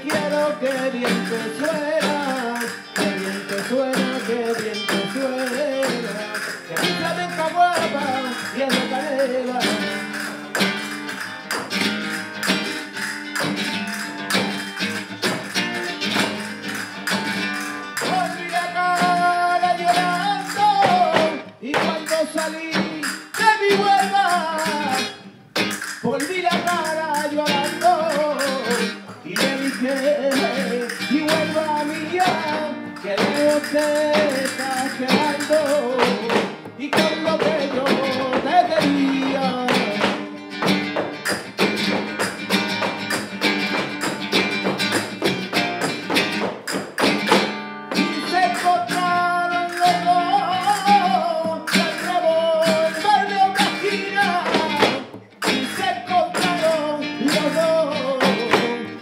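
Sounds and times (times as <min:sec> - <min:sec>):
man singing: 0:00.0 - 0:10.9, 0:17.8 - 0:40.8, 0:48.0 - 0:59.0
flamenco guitar: 0:00.0 - 0:59.0.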